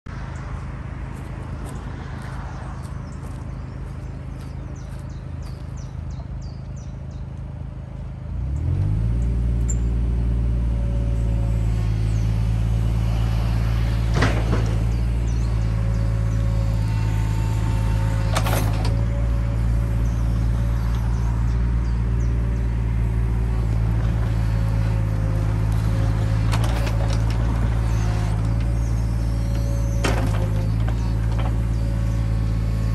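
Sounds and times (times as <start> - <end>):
excavator diesel engine running: 2.8 - 32.9
hydraulics moving: 10.8 - 32.9.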